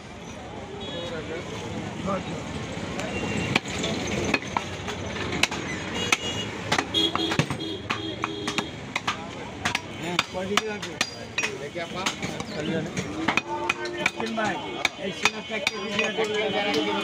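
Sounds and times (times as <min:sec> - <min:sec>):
cleaver chopping meat on wood: 0:04.3 - 0:16.2.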